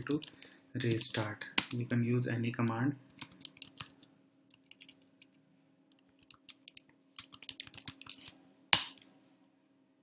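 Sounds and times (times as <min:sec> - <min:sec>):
faint steady hum: 0:00.0 - 0:10.0
keyboard typing: 0:03.2 - 0:05.2, 0:05.9 - 0:08.4.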